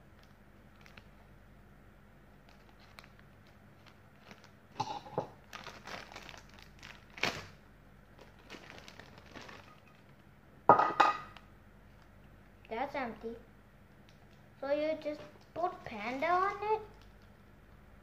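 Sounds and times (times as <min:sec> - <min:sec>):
plastic wrapper crinkling: 0:00.2 - 0:01.3, 0:02.4 - 0:04.8, 0:05.4 - 0:10.2, 0:15.1 - 0:17.6.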